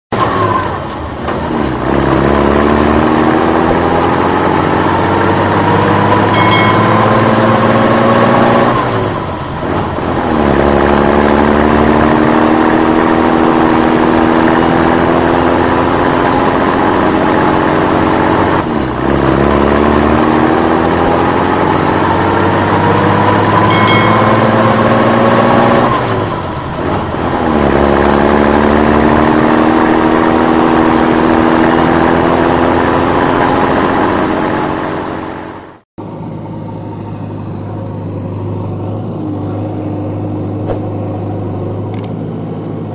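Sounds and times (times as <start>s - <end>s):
truck engine accelerating: 0.1s - 42.9s.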